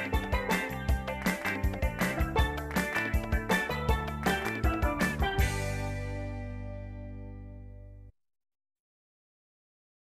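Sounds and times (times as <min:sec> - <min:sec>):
music with guitar and drums: 0:00.0 - 0:08.0.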